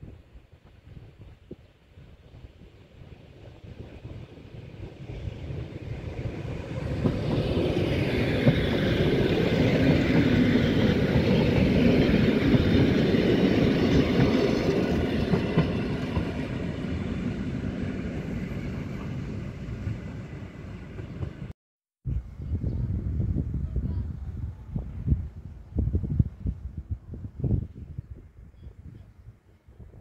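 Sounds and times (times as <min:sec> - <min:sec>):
train wheels rumbling on rails: 0:03.3 - 0:21.5.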